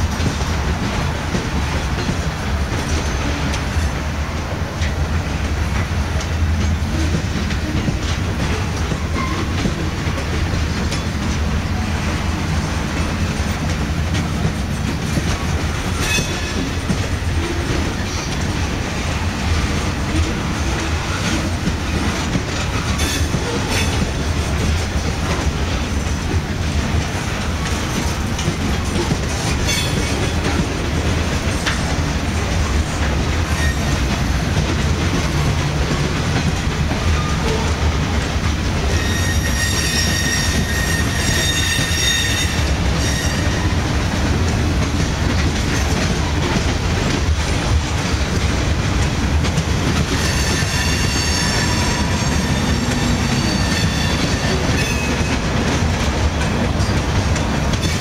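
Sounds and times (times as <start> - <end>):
train wheels rumbling on rails: 0.0 - 58.0
high metallic wheel squeal: 16.0 - 16.5, 38.9 - 43.6, 50.2 - 55.2.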